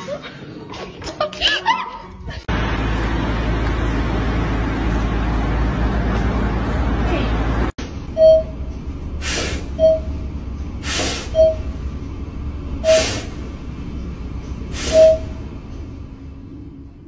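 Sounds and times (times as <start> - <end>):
elevator rumble: 0.0 - 17.0
short beep: 8.2 - 8.6, 11.4 - 11.7.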